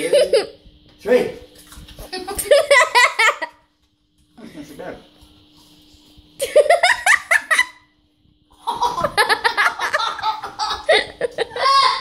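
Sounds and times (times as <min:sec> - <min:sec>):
man and boys laughing: 0:00.0 - 0:00.6, 0:02.3 - 0:03.6, 0:06.4 - 0:07.8, 0:08.6 - 0:12.0.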